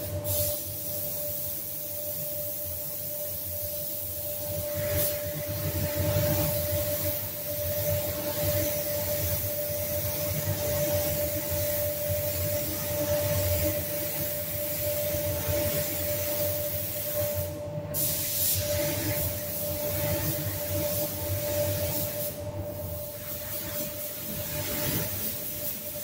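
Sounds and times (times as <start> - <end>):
spray gun hissing: 0.0 - 26.0.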